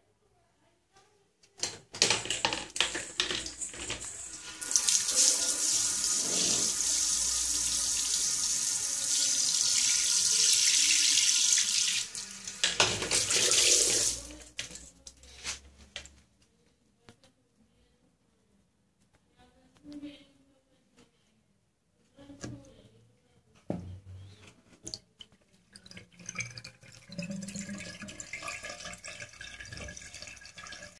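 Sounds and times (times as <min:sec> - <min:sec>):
shower water spraying on tray: 0:03.9 - 0:07.3.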